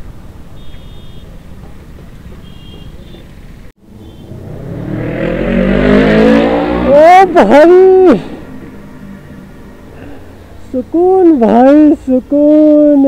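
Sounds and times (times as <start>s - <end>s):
motorcycle engine rumble: 0.0s - 12.4s
motorcycle engine revving: 3.8s - 10.7s.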